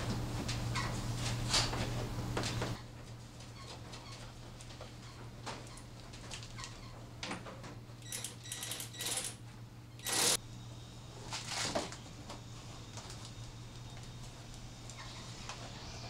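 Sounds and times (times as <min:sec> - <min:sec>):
steady low hum: 0:09.3 - 0:16.0.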